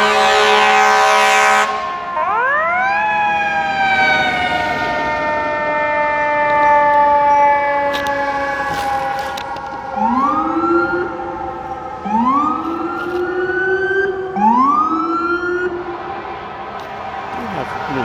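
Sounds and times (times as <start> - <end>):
electronic siren whoops: 0.0 - 18.0
siren sliding down: 1.3 - 18.0.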